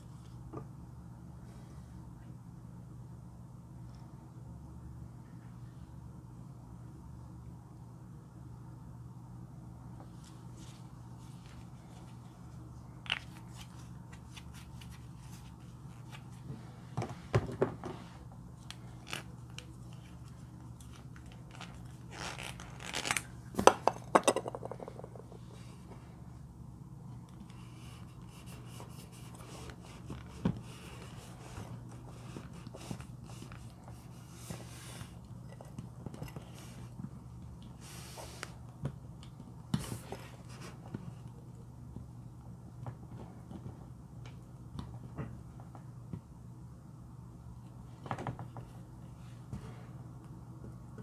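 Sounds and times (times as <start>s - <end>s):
low steady hum: 0.0s - 51.0s
packaging rustling: 20.8s - 23.7s.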